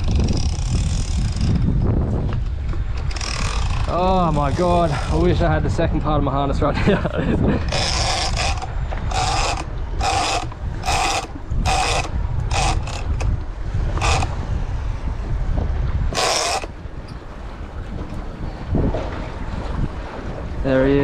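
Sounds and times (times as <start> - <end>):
fishing reel ratcheting: 0.0 - 1.7, 2.9 - 5.2, 7.7 - 13.3, 14.0 - 14.3, 16.1 - 16.8
wind and sea rumble: 0.0 - 21.0.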